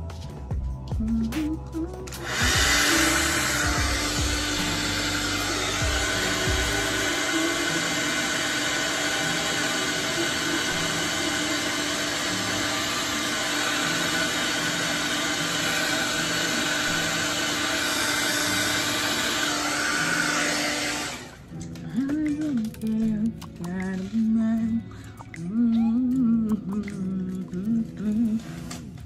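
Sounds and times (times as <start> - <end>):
hair dryer running: 2.0 - 22.9, 28.2 - 28.9.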